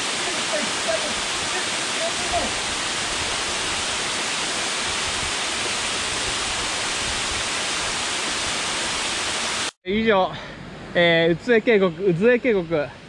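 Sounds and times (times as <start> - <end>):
waterfall rushing: 0.0 - 9.7.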